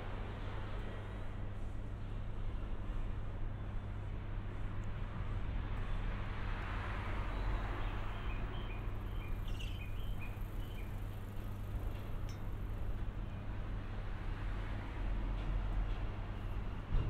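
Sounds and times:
high bird chirps: 8.1s - 11.0s.

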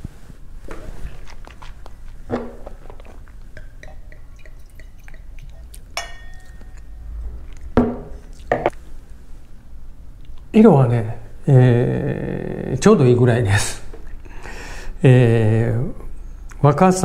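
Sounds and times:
wine pouring into a glass: 3.6s - 6.9s
glass clinking: 3.6s - 7.0s.

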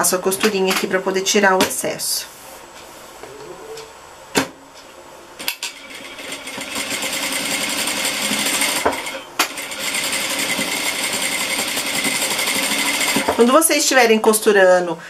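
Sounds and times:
sewing machine stitching: 5.4s - 13.4s.

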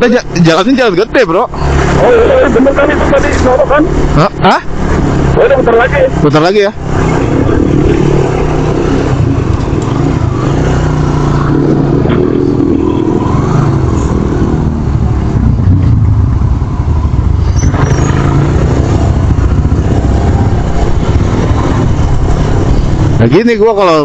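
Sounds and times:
road noise: 0.0s - 24.0s
wind noise: 6.8s - 23.2s
motorcycle engine running: 6.8s - 23.4s.

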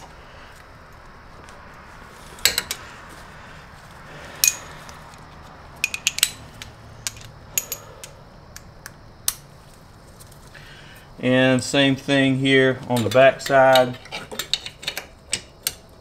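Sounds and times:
metal hand tools clinking: 2.4s - 2.8s, 4.4s - 5.0s, 5.8s - 8.2s, 13.0s - 15.9s.

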